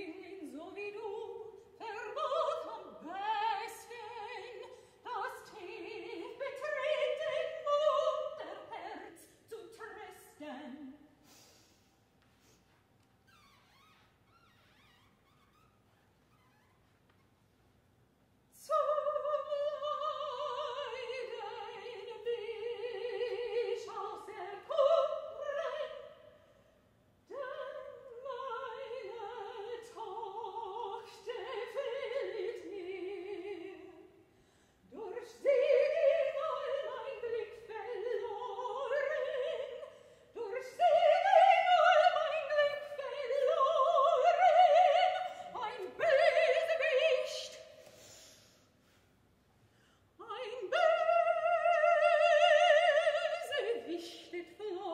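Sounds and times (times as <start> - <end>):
woman singing operatically: 0.0 - 11.1, 18.6 - 26.3, 27.3 - 34.1, 34.9 - 47.7, 50.2 - 54.9
singer breathing: 11.2 - 12.9, 34.3 - 34.9, 47.8 - 50.2.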